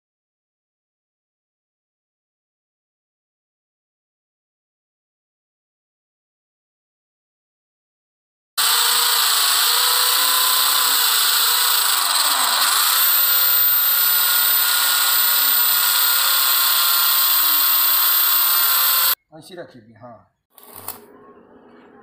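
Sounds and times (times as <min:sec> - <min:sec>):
electric drill boring into wall: 0:08.6 - 0:19.2, 0:20.5 - 0:21.0.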